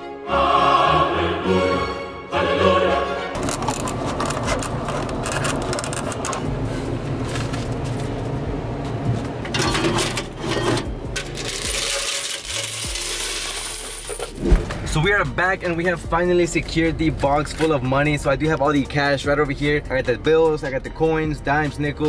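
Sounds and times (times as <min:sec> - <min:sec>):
coins clinking and rattling: 0:03.4 - 0:06.4, 0:09.6 - 0:14.5.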